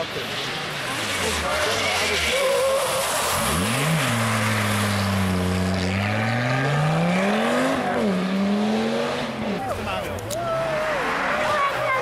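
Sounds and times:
rally car engine revving past: 0.8s - 9.6s.

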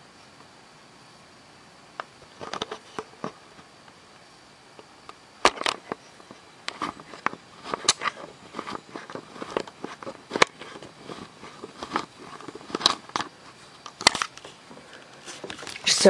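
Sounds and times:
camera handling noise: 5.4s - 15.9s.

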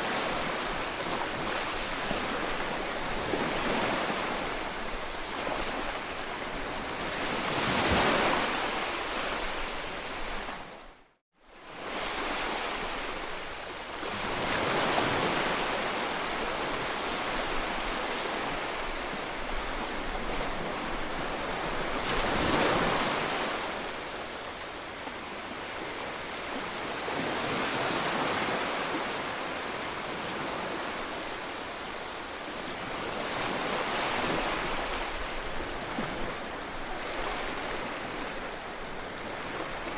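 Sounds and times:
surf washing up sandy beach: 11.6s - 39.9s.

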